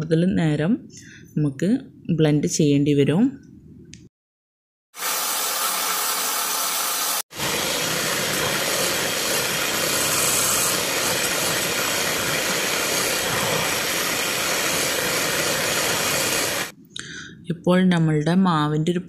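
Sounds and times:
electric hand mixer whisking batter: 5.0s - 16.7s.

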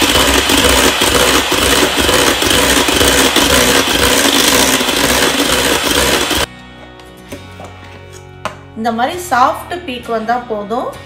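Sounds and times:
electric hand mixer whipping cream: 0.0s - 6.5s.

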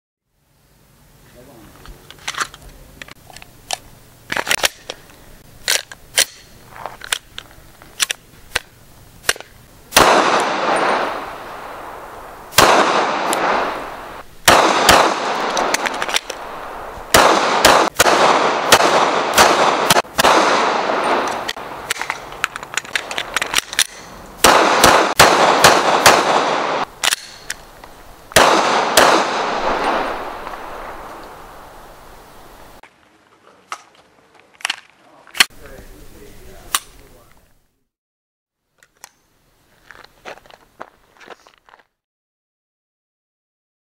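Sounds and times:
echoing gunshots: 9.9s - 22.3s, 23.0s - 27.5s, 28.3s - 32.2s
pistol loading clicks: 21.2s - 24.1s, 27.0s - 27.6s.

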